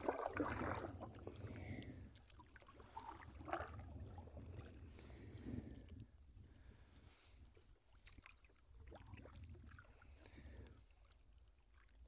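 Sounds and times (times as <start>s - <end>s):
paddles splashing water: 0.0s - 5.7s
faint low rumble: 0.0s - 11.8s.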